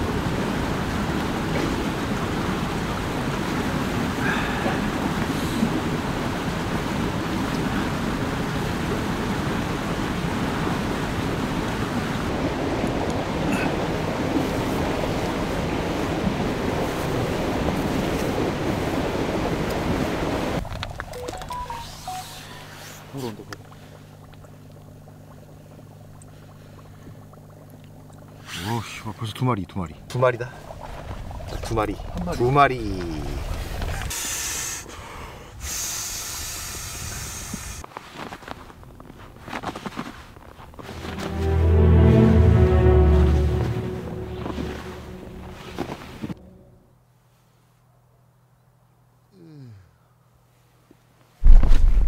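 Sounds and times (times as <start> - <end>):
short tones: 21.2 - 22.7
steady hiss: 34.0 - 37.8.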